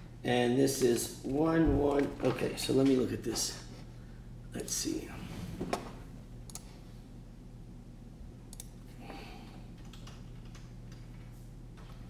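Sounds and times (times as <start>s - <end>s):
steady low hum: 0.0s - 12.0s
computer keyboard typing clicks: 6.5s - 6.7s, 8.5s - 8.8s, 9.8s - 11.1s.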